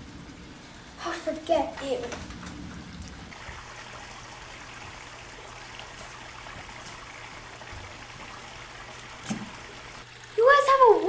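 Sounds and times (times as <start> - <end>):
water trickling and splashing: 0.0 - 11.0.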